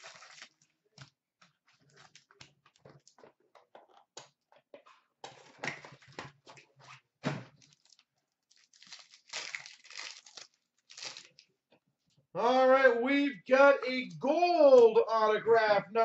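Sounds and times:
foil wrappers crinkling and tearing: 0:00.0 - 0:00.7, 0:07.6 - 0:11.4.

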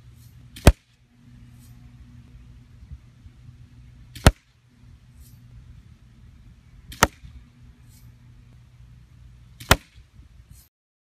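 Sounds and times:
bb gun shots: 0:00.6 - 0:01.0, 0:04.1 - 0:04.5, 0:06.9 - 0:07.4, 0:09.6 - 0:10.0.

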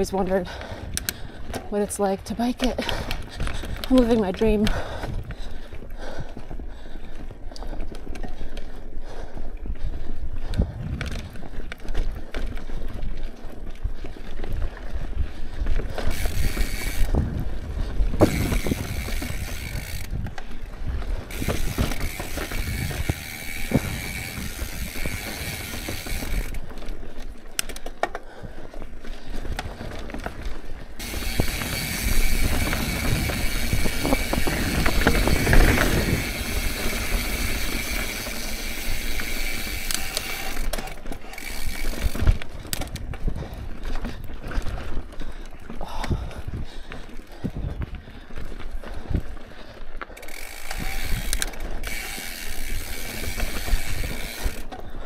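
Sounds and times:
bicycle freehub ratcheting buzz: 0:16.0 - 0:20.4, 0:21.2 - 0:26.7, 0:31.0 - 0:43.0, 0:50.2 - 0:55.0
tyres rumbling on rock: 0:29.6 - 0:42.4.

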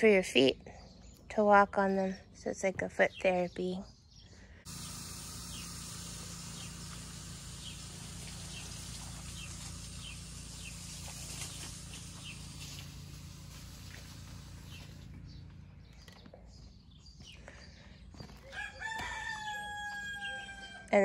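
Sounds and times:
low hum and hiss: 0:04.7 - 0:16.0.

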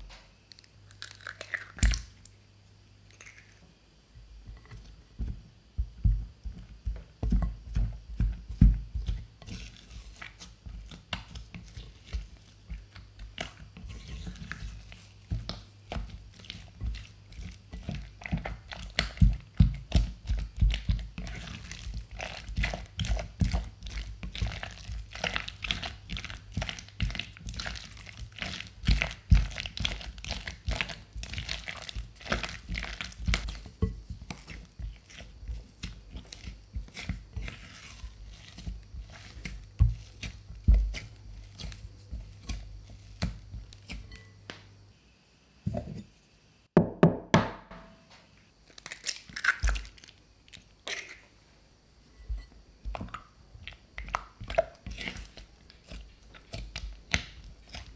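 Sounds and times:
egg cracking on bowl: 0:00.5 - 0:02.4, 0:48.7 - 0:50.2
spatula slapping sticky dough: 0:04.5 - 0:44.7, 0:52.3 - 0:57.9.

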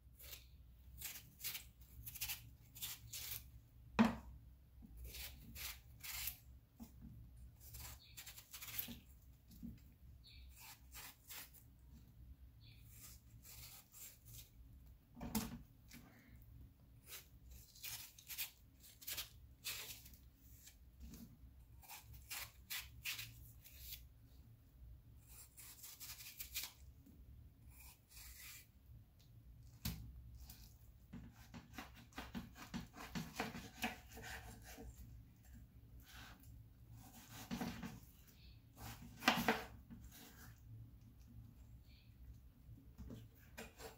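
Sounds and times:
knife cutting watermelon rind: 0:00.1 - 0:03.6, 0:05.0 - 0:07.0, 0:07.6 - 0:09.7, 0:10.3 - 0:11.7, 0:12.8 - 0:14.6, 0:17.0 - 0:24.1, 0:25.2 - 0:26.9, 0:27.7 - 0:28.8, 0:29.6 - 0:40.6, 0:43.4 - 0:43.9.

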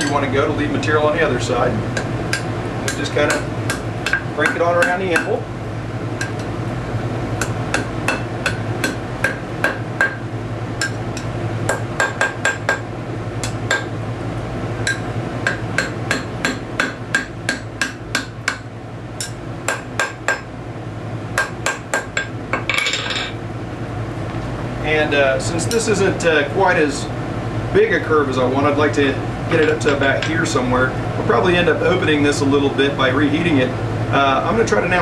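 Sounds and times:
hammer striking steel on anvil: 0:02.0 - 0:05.4, 0:07.4 - 0:10.2, 0:10.8 - 0:12.8, 0:13.4 - 0:13.9, 0:14.8 - 0:20.5, 0:21.4 - 0:23.3.

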